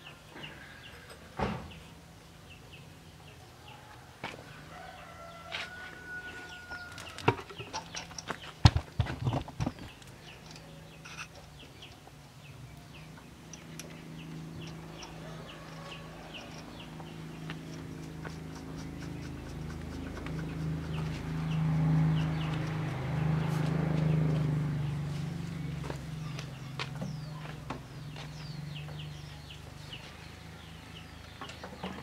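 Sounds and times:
rooster crowing: 3.6s - 7.3s, 15.0s - 16.8s
metal parts clinking: 10.2s - 11.5s.

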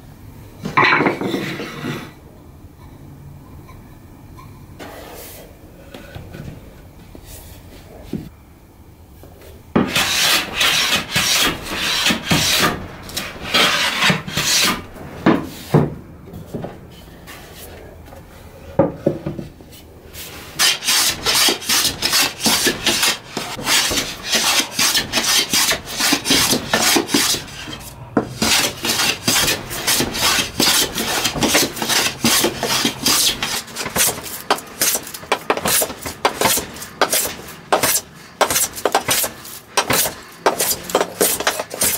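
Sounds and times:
hand plane rasping on wood: 9.9s - 14.8s, 20.6s - 41.9s.

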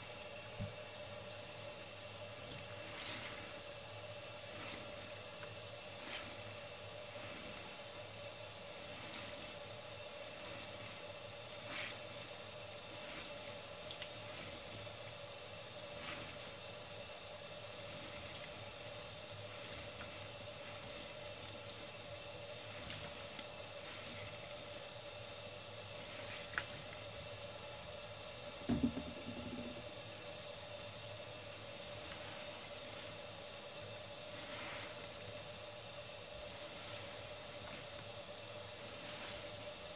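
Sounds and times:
sponges squeezed and rinsed: 2.3s - 27.8s, 31.5s - 39.9s
tap water running into sink: 28.6s - 29.9s
soft thump: 28.7s - 29.6s.

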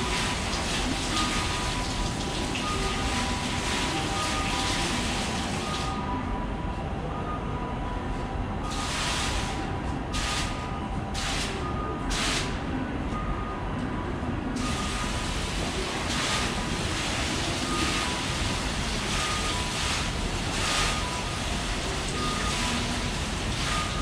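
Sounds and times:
two-tone electronic beep: 2.6s - 6.4s, 11.6s - 12.1s, 14.6s - 15.2s, 17.6s - 19.8s, 20.6s - 24.0s.

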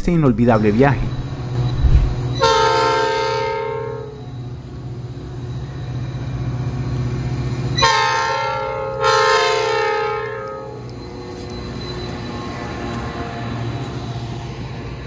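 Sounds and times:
locomotive engine rumbling: 0.0s - 15.0s
locomotive air horn: 2.3s - 4.3s, 7.8s - 10.9s.

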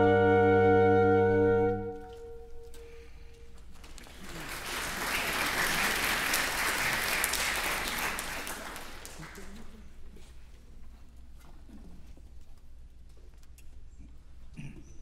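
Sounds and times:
audience applause: 3.7s - 9.9s.

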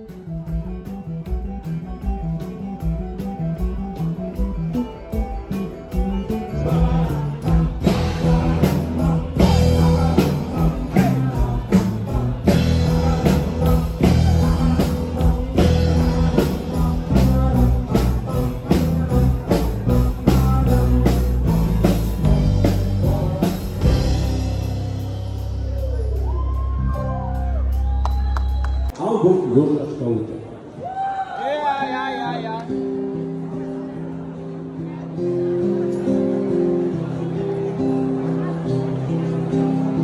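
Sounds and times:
drums keeping a beat: 0.0s - 28.9s
live rock band playing: 0.0s - 29.0s, 32.2s - 40.0s.

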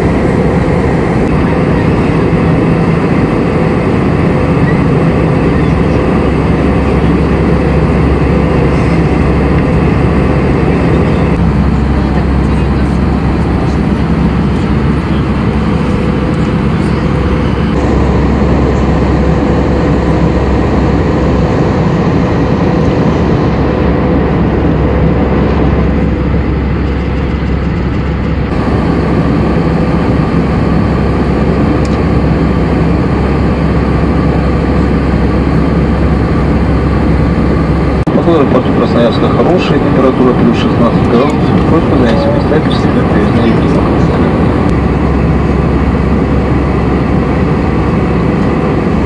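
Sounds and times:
aircraft engine rumble: 0.0s - 49.0s
higher hum: 0.0s - 49.0s.

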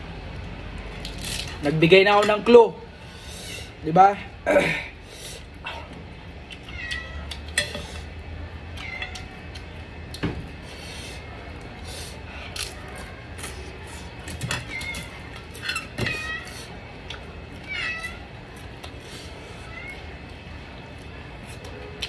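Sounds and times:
cat meowing: 6.6s - 7.3s.

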